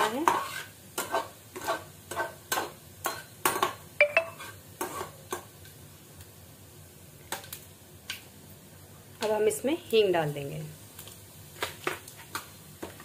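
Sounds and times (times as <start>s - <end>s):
spatula scraping a pan: 0.0s - 3.7s, 4.4s - 5.3s
seeds frying in hot oil: 0.0s - 13.0s.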